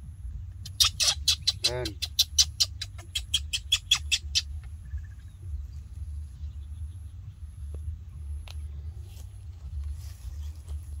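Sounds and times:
low rumble: 0.0s - 0.8s, 2.2s - 11.0s
small animal chirping: 0.6s - 5.4s.

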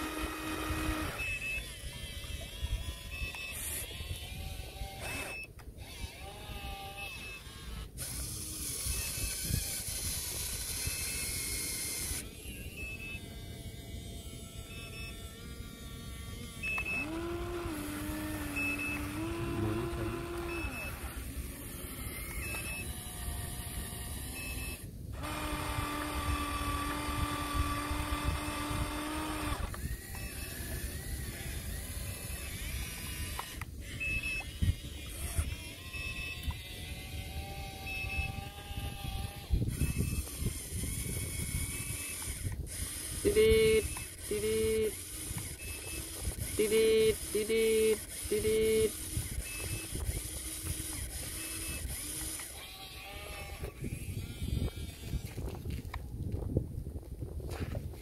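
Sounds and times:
electric motors whining: 0.0s - 56.0s
short high beeps: 18.5s - 21.1s, 43.2s - 45.0s, 45.6s - 49.9s.

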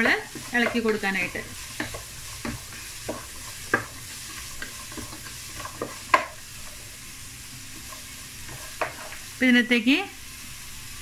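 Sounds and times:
wooden spatula scraping pan: 0.0s - 7.0s, 7.7s - 9.3s
vegetables sizzling in oil: 0.0s - 11.0s.

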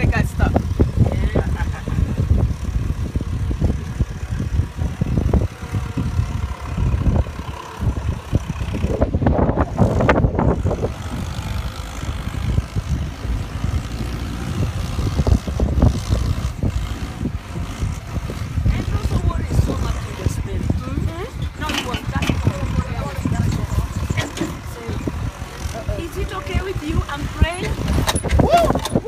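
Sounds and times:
vehicle rumble: 0.0s - 29.0s
knocks and rattles: 21.3s - 25.8s.

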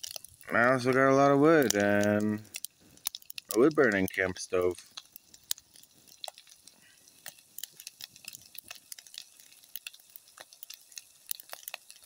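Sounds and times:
food sizzling in a skillet: 0.0s - 12.0s
wood fire crackling and popping: 0.0s - 12.0s.

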